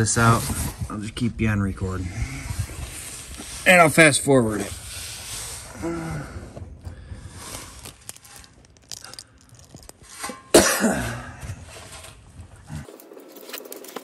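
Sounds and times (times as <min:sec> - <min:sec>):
faint rustling: 0:06.9 - 0:10.4
man coughing: 0:10.5 - 0:11.4.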